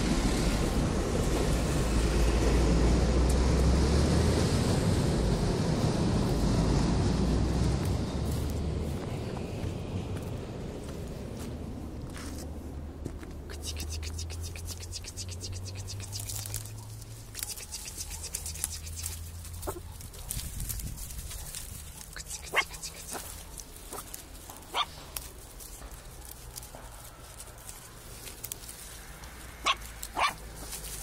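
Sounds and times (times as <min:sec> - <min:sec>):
dry twigs crackling: 0:07.8 - 0:31.0
puppies yelping: 0:13.6 - 0:20.4, 0:21.2 - 0:25.0, 0:29.5 - 0:31.0.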